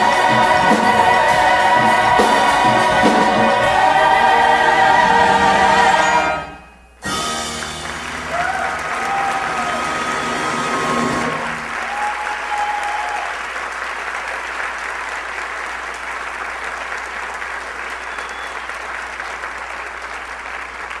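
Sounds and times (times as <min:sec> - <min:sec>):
audience applauding: 0:07.2 - 0:21.0.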